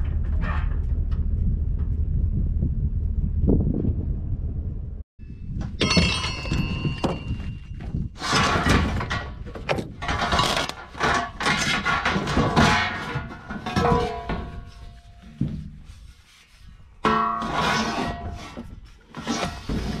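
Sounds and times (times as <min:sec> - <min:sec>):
irregular thuds and clanks: 0:00.0 - 0:04.1, 0:05.4 - 0:16.0.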